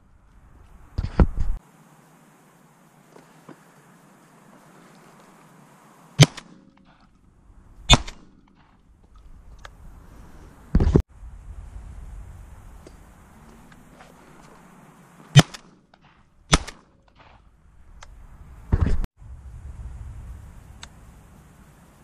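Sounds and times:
wind rumble on microphone: 0:00.0 - 0:01.6, 0:08.9 - 0:14.6, 0:17.6 - 0:22.0
shotgun shots: 0:06.2 - 0:06.6, 0:07.9 - 0:08.8, 0:15.3 - 0:17.5.

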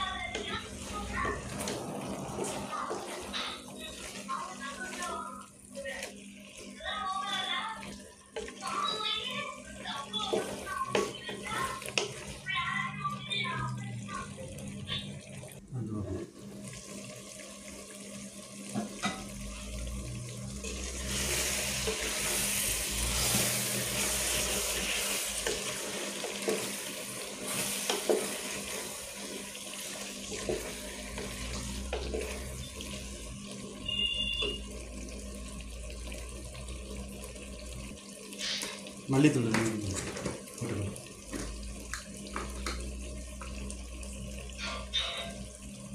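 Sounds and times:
curry sizzling in a pot: 0:00.0 - 0:15.6, 0:16.3 - 0:45.9
wooden spatula scraping pot: 0:00.3 - 0:05.2.

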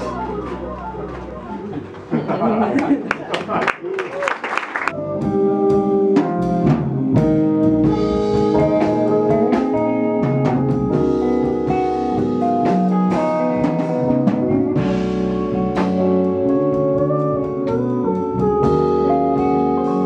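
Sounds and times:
live jazz-funk band playing: 0:00.0 - 0:02.6, 0:04.8 - 0:20.0.

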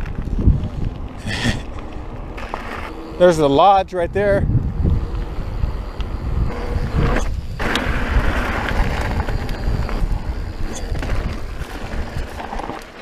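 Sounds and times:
wind buffeting microphone: 0:00.0 - 0:12.8
bike clicks and rattles: 0:00.0 - 0:13.0.

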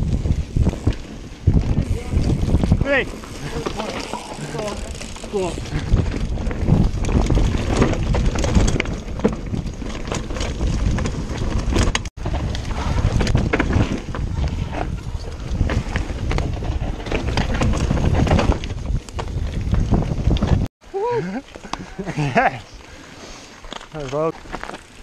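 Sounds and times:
tyres rumbling over dirt: 0:00.0 - 0:20.7
wind on microphone: 0:00.0 - 0:20.7
bike rattling knocks: 0:00.6 - 0:14.3.

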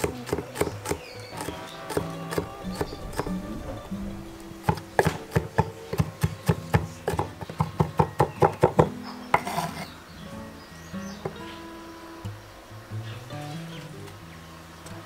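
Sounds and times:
background music: 0:00.0 - 0:15.0.

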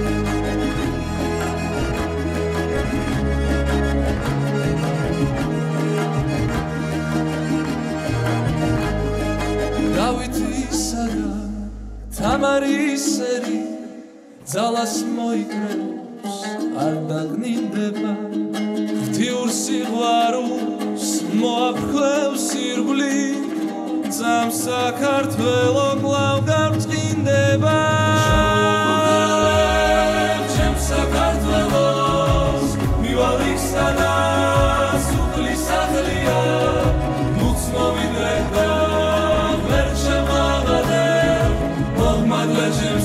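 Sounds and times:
instrumental backing music: 0:00.0 - 0:12.6, 0:18.2 - 0:43.0
man singing a slow song: 0:10.0 - 0:18.4, 0:19.0 - 0:43.0.

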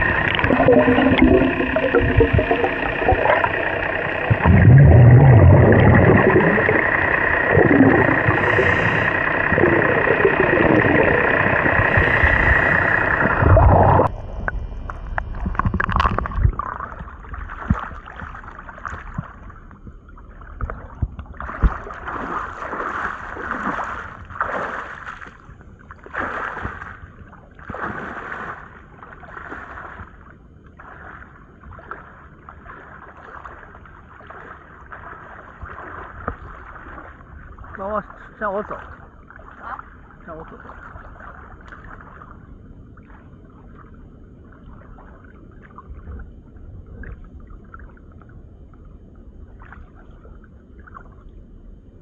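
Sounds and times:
loud underwater noise: 0:00.0 - 0:19.5
seawater sloshing around legs: 0:20.4 - 0:45.6.

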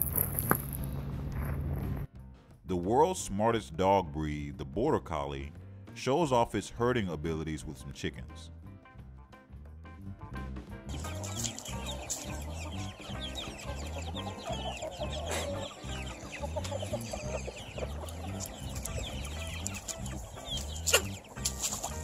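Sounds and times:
background music with low beat: 0:00.6 - 0:22.0
chickens clucking: 0:10.9 - 0:22.0
short high chicken calls: 0:11.0 - 0:21.9.

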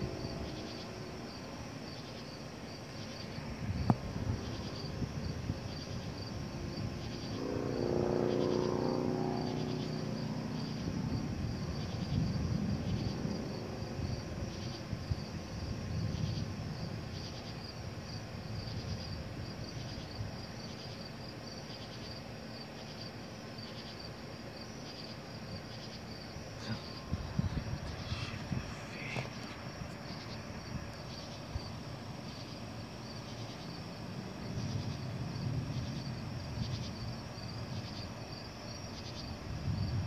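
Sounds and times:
crickets chirping: 0:00.0 - 0:40.0
distant thunder rumble: 0:26.6 - 0:32.5, 0:33.7 - 0:38.1.

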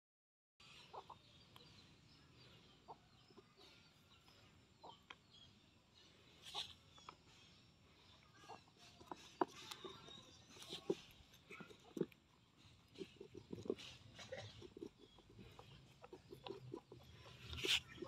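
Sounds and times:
chickens clucking: 0:00.8 - 0:01.3, 0:08.4 - 0:18.0.

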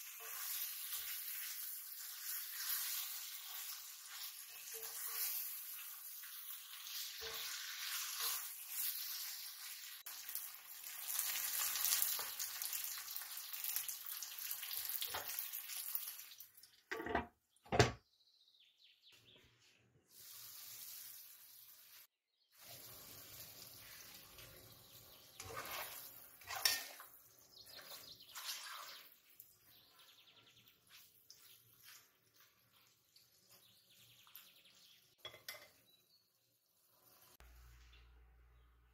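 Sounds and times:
okra sizzling in a pan: 0:00.0 - 0:16.9, 0:20.1 - 0:30.0, 0:30.7 - 0:37.9
short kitchen sounds: 0:16.7 - 0:18.0, 0:19.4 - 0:29.1.

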